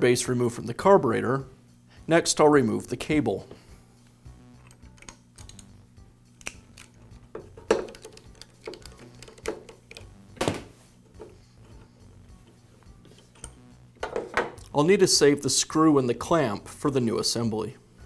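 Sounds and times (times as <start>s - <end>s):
faint steady hum: 0.0s - 18.0s
screwdriver clicking on plastic: 7.7s - 10.1s.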